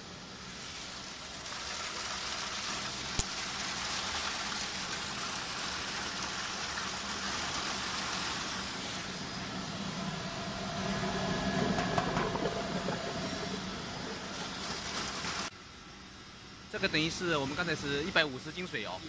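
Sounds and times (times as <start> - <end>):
water gushing into metal tank: 0.4 - 9.3, 11.8 - 15.5.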